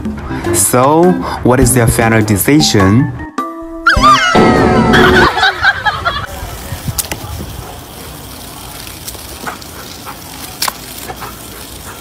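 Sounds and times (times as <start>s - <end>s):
water jet gushing and splashing: 5.2s - 12.0s.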